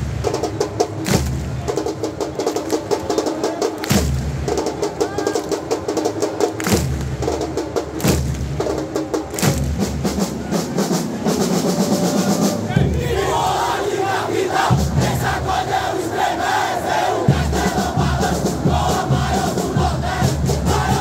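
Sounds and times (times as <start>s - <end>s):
drums playing fast beat: 0.0s - 21.0s
crowd chanting: 11.6s - 21.0s.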